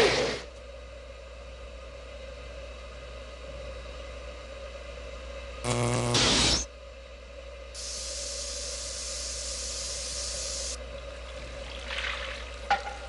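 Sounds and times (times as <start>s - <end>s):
faint constant hum: 0.0s - 13.0s
steam hissing: 7.8s - 10.8s.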